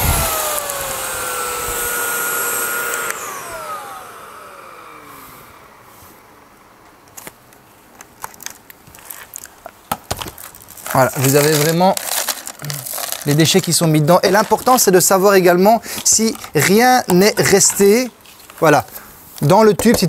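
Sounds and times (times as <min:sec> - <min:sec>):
vacuum motor whine: 0:00.0 - 0:06.7.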